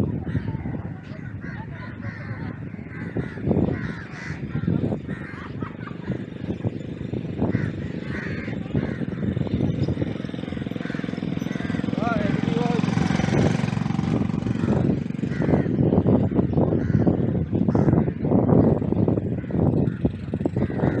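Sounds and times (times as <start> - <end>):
crows cawing: 1.2 - 5.6, 7.4 - 9.6, 10.2 - 13.8, 14.4 - 18.3, 19.3 - 21.0
atv engine running: 2.9 - 21.0
faint distant voices: 7.6 - 13.8.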